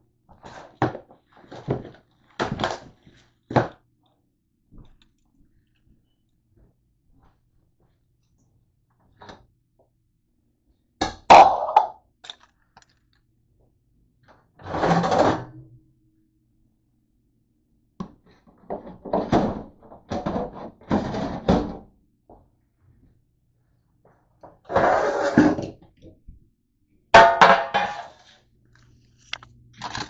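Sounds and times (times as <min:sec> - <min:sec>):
scrape: 0:24.7 - 0:25.6, 0:27.8 - 0:28.4.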